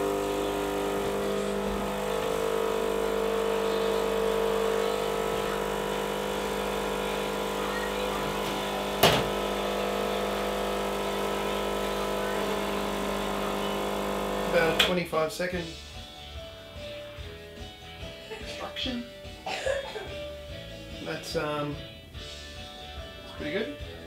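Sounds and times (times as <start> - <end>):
espresso machine pump humming: 0.0 - 14.9.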